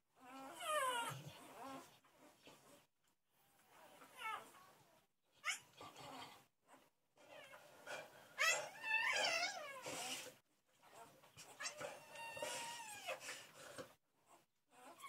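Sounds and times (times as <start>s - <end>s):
puppies crying: 8.4s - 9.9s.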